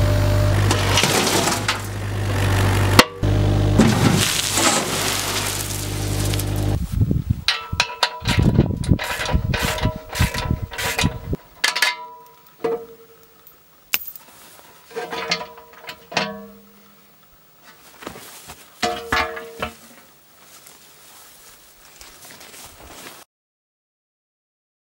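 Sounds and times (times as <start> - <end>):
steel bucket clanking and clinking: 3.8 - 6.6, 7.5 - 16.8, 18.8 - 20.1.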